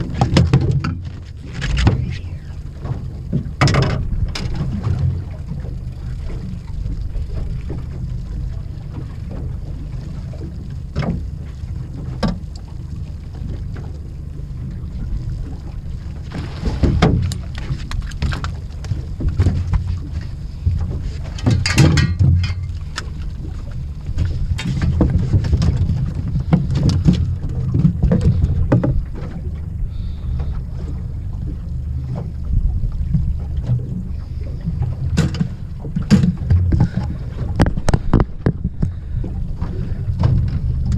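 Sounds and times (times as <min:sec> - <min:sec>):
gear knocking against boat: 0:00.0 - 0:02.2, 0:02.8 - 0:06.6, 0:16.2 - 0:29.7, 0:34.7 - 0:40.9
boat engine low rumble: 0:00.0 - 0:40.9
water against hull: 0:00.0 - 0:40.9.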